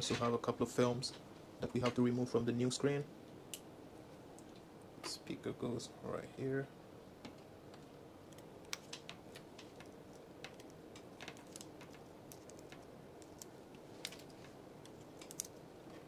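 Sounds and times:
low steady hiss: 0.0 - 16.0
tweezers clicking and tapping: 8.3 - 15.5.

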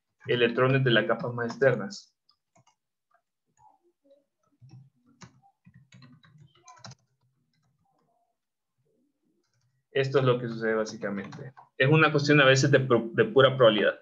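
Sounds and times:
typing on a keyboard: 4.6 - 8.1.

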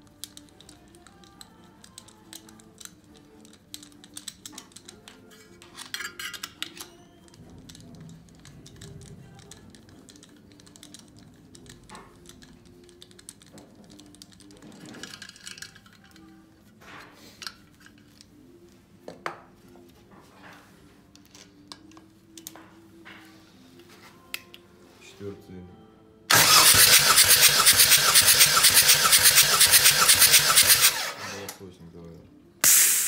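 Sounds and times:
hand tool clicking and tapping metal: 0.0 - 16.4.

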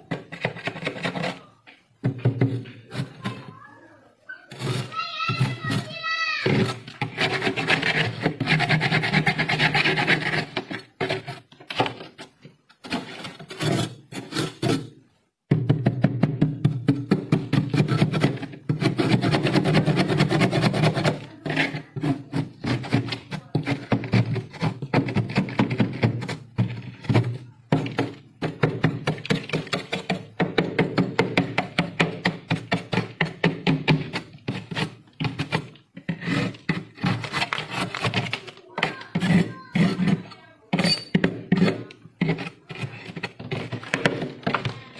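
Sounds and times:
metal blade scraping frost: 4.5 - 11.4.

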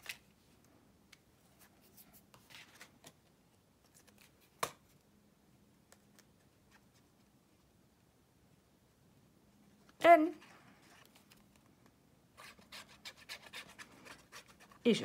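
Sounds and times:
card rustling: 1.4 - 5.0, 10.4 - 11.7.

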